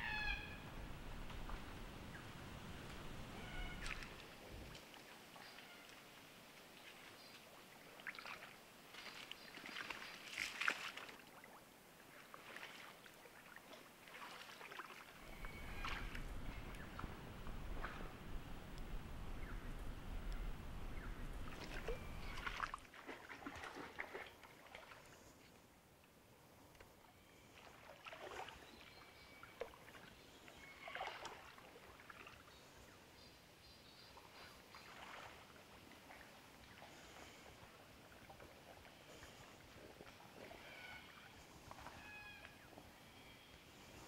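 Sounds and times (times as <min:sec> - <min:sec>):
splashing in shallow water: 0:03.3 - 0:18.4, 0:21.0 - 0:25.5, 0:27.4 - 0:32.8, 0:34.2 - 0:44.0
footsteps splashing in water: 0:03.7 - 0:05.0, 0:07.9 - 0:11.6, 0:12.2 - 0:17.1, 0:21.4 - 0:25.1, 0:34.7 - 0:36.4.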